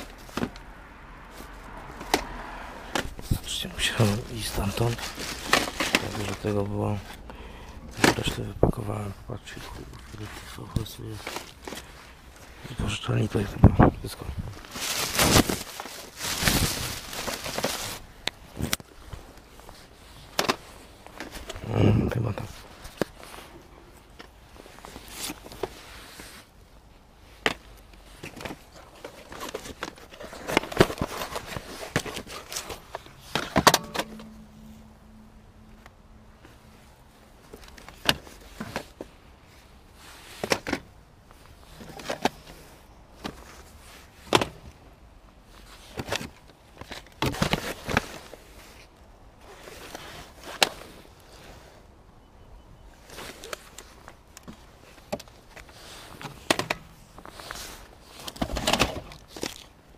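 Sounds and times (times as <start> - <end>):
plastic cassettes clacking: 2.9 - 6.8, 7.9 - 8.7, 14.6 - 18.9, 20.3 - 21.6, 27.4 - 34.3, 40.4 - 40.9, 41.6 - 42.6, 45.8 - 48.2, 53.2 - 59.8.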